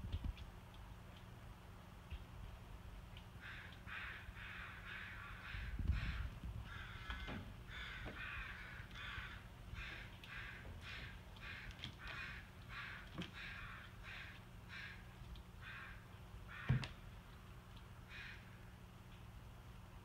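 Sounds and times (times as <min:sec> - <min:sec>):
animal calling harshly: 0:03.4 - 0:15.0.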